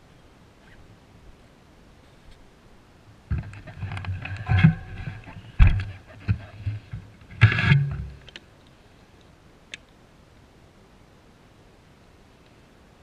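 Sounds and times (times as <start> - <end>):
bicycle rattling on dirt trail: 3.3 - 8.4
small tick: 12.4 - 12.6.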